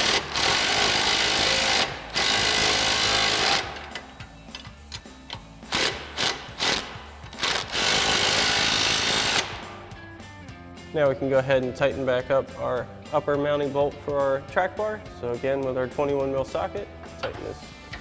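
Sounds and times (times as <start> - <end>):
impact wrench hammering bolts: 0.0 - 9.6.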